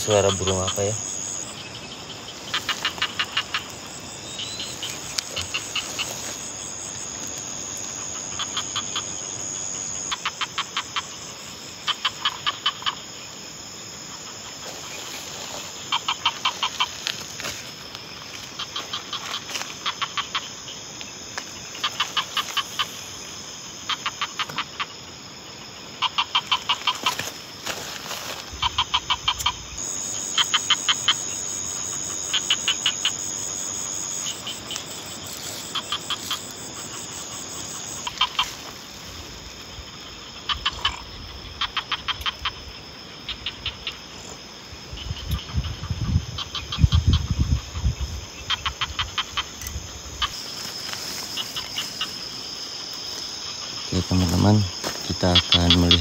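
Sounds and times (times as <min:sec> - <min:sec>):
crickets chirring: 0:00.0 - 0:56.0
animal clicking calls: 0:02.5 - 0:03.8, 0:21.8 - 0:22.9, 0:26.0 - 0:27.2, 0:28.6 - 0:29.6, 0:38.0 - 0:38.6, 0:41.6 - 0:42.6.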